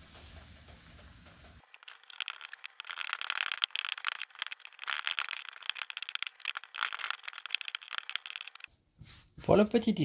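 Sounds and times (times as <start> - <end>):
plastic glove rustling: 1.6 - 8.7.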